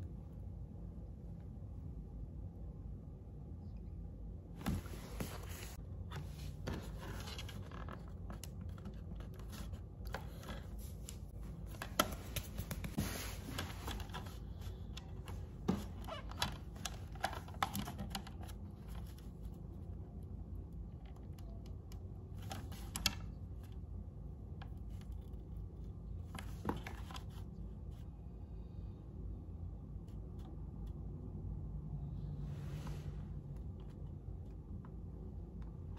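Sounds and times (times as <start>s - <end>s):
low steady hum: 0.0s - 35.9s
paper rustling: 4.6s - 19.5s.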